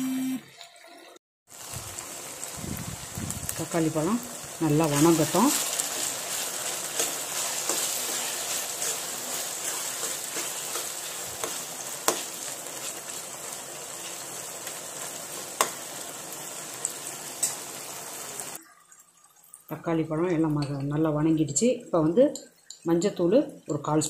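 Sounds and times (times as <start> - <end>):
food sizzling in oil: 1.5 - 19.7.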